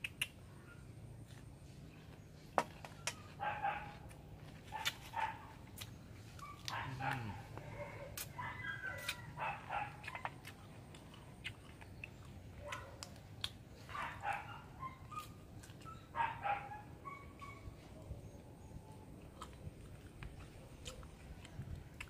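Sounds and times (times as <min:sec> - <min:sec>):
dog barking and yipping: 0:03.2 - 0:04.1, 0:04.7 - 0:05.6, 0:06.3 - 0:10.4, 0:12.6 - 0:13.1, 0:13.8 - 0:17.9.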